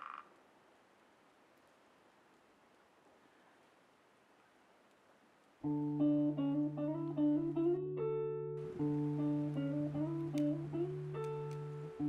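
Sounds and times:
plucked acoustic guitar tune: 0:05.7 - 0:12.0.

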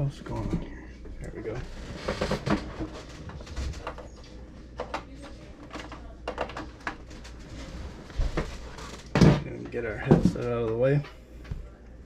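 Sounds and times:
headset and cable clicks and knocks: 0:04.8 - 0:07.1.

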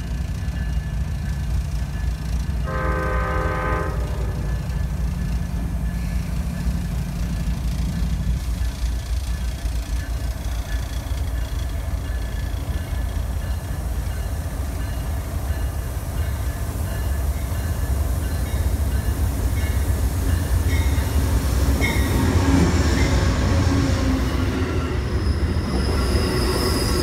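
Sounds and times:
diesel locomotives rumbling: 0:00.0 - 0:27.0
passenger train approaching: 0:00.0 - 0:27.0
high wheel squeals: 0:21.8 - 0:27.0.

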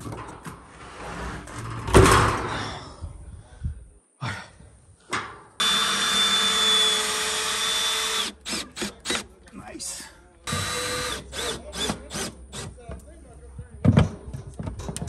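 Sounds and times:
power tool whining: 0:05.6 - 0:09.3, 0:10.5 - 0:12.7.

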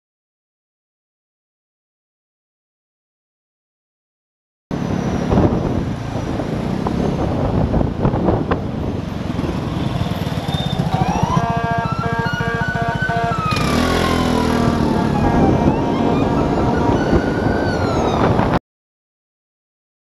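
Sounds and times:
road and wind noise: 0:04.7 - 0:18.6.

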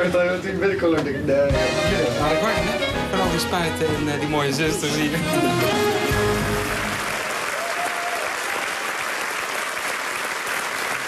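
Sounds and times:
studio audience applauding: 0:06.1 - 0:11.0.

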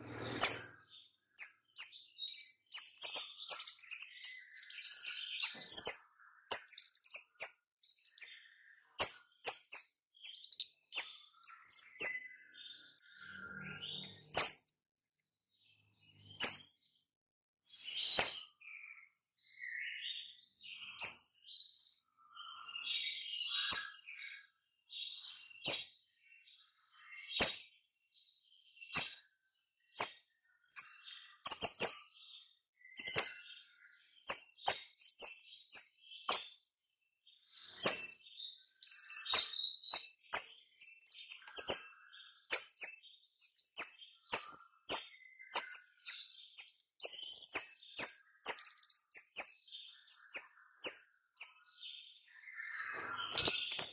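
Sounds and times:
bird soft twittering: 0:00.0 - 0:14.6, 0:30.0 - 0:32.1, 0:37.6 - 0:53.9
bird sharp high chirps: 0:00.0 - 0:14.8, 0:16.0 - 0:16.9, 0:17.7 - 0:21.6, 0:22.3 - 0:24.4, 0:25.0 - 0:26.1, 0:27.0 - 0:27.8, 0:28.8 - 0:36.7, 0:37.5 - 0:53.9.

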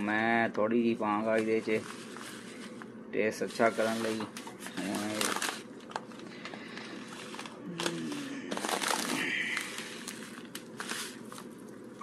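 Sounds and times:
foil packet crinkling: 0:03.5 - 0:12.0
tea leaves pouring: 0:08.6 - 0:11.4.

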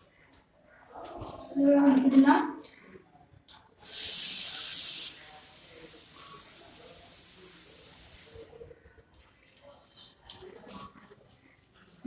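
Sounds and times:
static hiss: 0:03.8 - 0:08.6.

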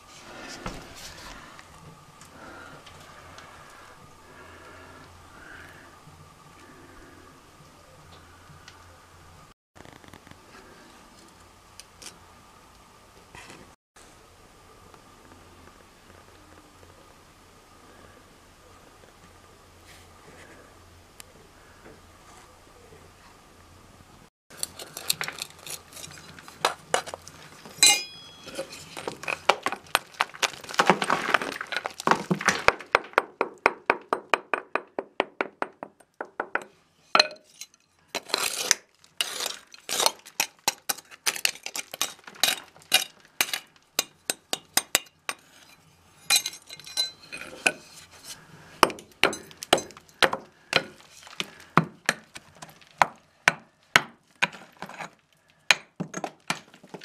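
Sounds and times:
hand hammer chipping concrete: 0:38.2 - 0:45.5, 0:48.8 - 0:55.1.

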